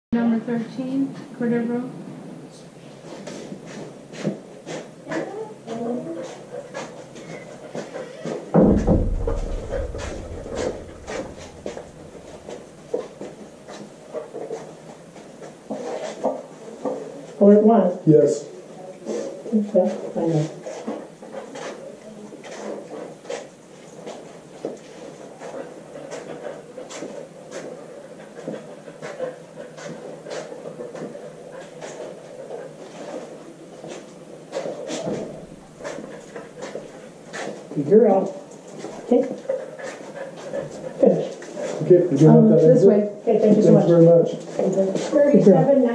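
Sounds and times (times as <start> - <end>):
loud low thump: 8.6 - 12.7
dog panting and sniffing: 25.0 - 33.3, 38.6 - 41.8.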